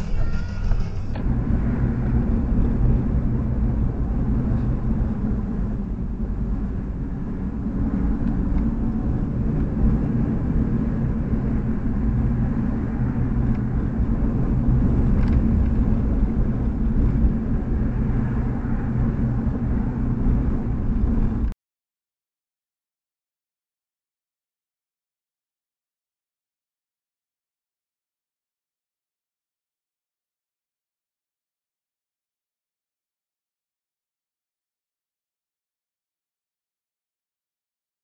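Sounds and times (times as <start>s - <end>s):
car engine and road noise: 0.0s - 21.6s.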